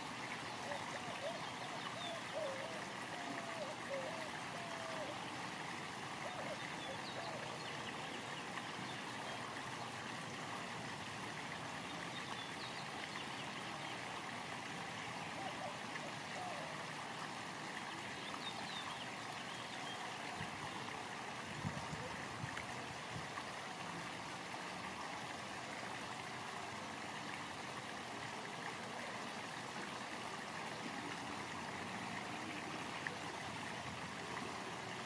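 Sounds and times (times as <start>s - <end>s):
rushing running water: 0.0s - 35.0s.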